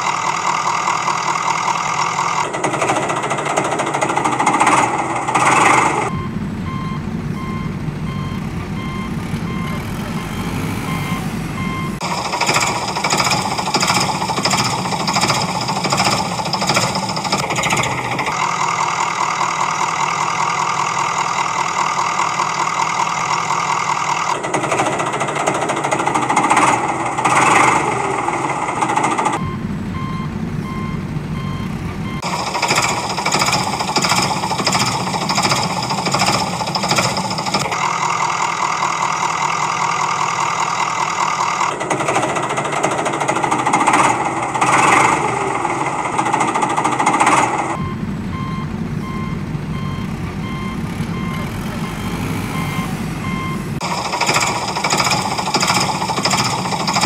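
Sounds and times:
heavy vehicle engine running: 0.0 - 57.0
reversing beeps: 5.4 - 18.3, 29.4 - 37.9, 47.3 - 57.0.

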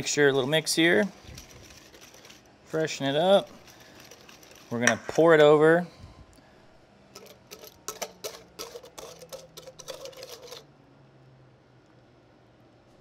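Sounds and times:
whisk scraping metal bowl: 1.2 - 2.4, 3.2 - 5.0, 7.2 - 10.6.

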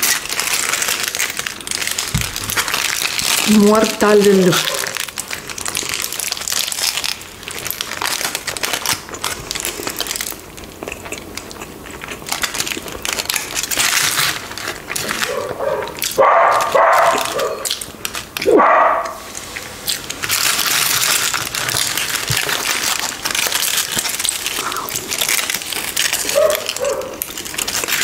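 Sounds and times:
aluminium foil crinkling: 0.0 - 28.0
person chewing sandwich: 0.0 - 28.0
voice-like sounds: 24.6 - 25.0.

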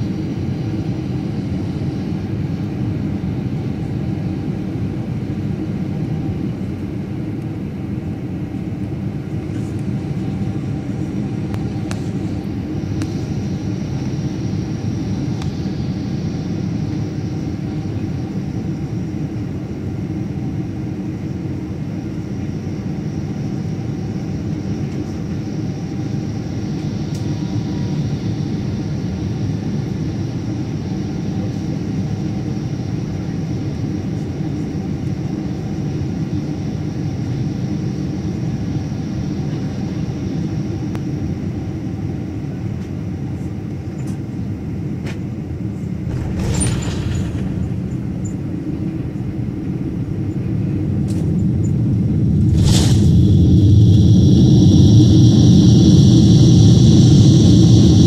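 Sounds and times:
jet engines rumbling: 0.0 - 58.0
rushing air: 46.0 - 58.0.

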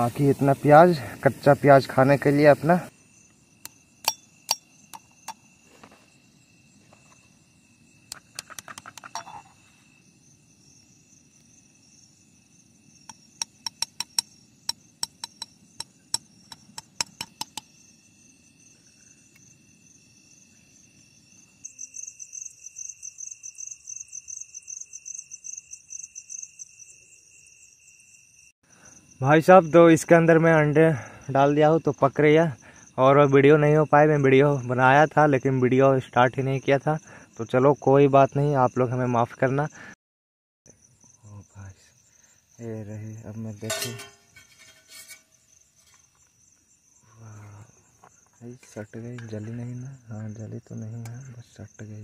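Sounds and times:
crickets trilling: 0.0 - 40.0, 40.7 - 52.0
egg tapping on steel pot: 13.1 - 17.7.

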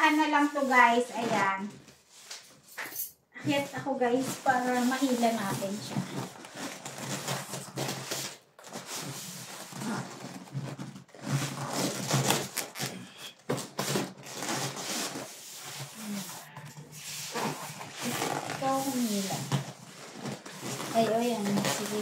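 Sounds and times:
cardboard and plastic rustling: 0.0 - 2.7, 3.4 - 22.0.

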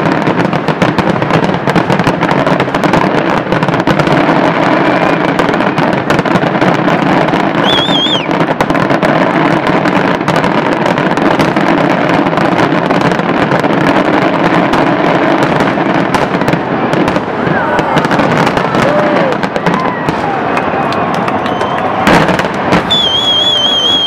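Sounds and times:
fireworks bursting and crackling: 0.0 - 24.0
firework whistle warbling: 7.5 - 8.9, 16.1 - 24.0.

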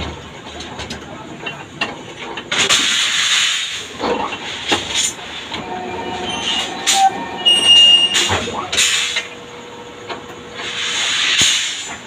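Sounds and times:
machine whine: 5.2 - 10.4.

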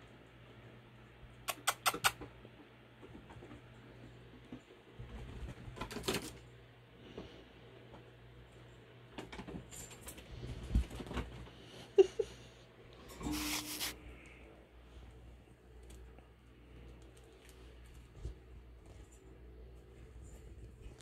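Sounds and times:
sharp clicks: 1.5 - 2.3.

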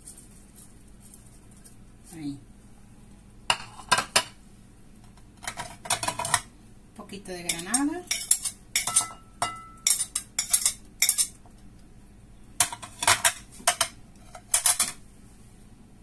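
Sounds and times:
knife clinking on ceramic plate: 7.5 - 11.4.

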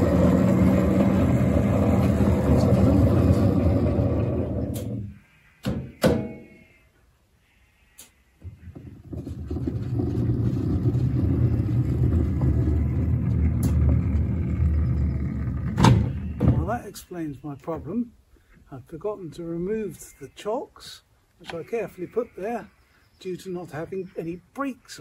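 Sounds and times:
small locomotive rumbling on rails: 0.0 - 5.0, 9.0 - 16.6.

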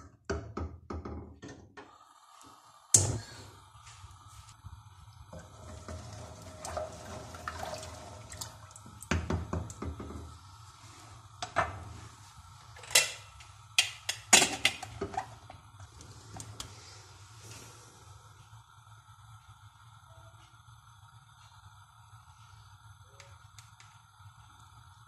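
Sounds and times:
spatula scraping and sloshing in pot: 5.4 - 8.6.

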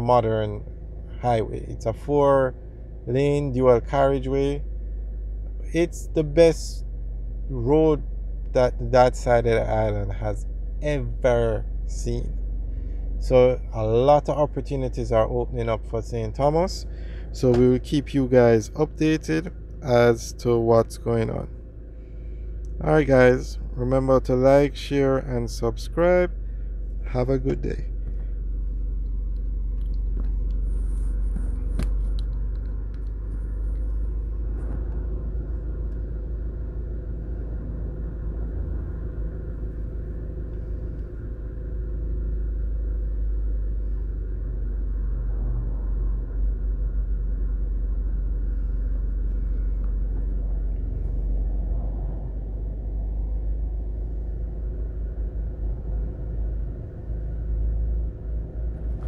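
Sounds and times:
low rumble of traffic: 0.0 - 59.0
dump truck passing: 30.6 - 59.0
car passing: 43.7 - 59.0.

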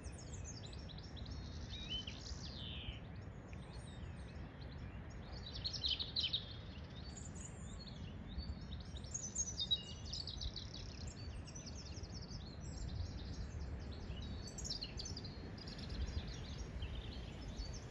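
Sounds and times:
songbirds singing: 0.0 - 17.9.

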